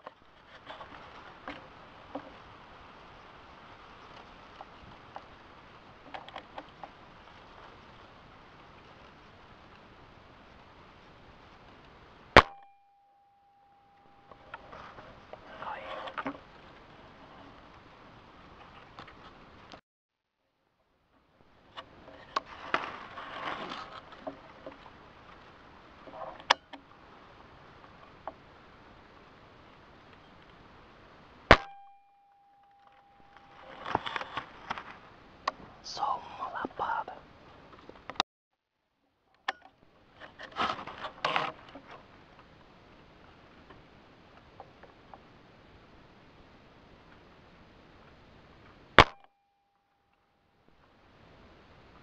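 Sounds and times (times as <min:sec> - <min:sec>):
faint steady hiss: 0:00.0 - 0:19.8, 0:20.4 - 0:38.2, 0:38.8 - 0:52.0
loud sharp snap: 0:12.4 - 0:12.8, 0:31.5 - 0:32.1, 0:49.0 - 0:49.3
dry leaves rustling: 0:22.4 - 0:24.2.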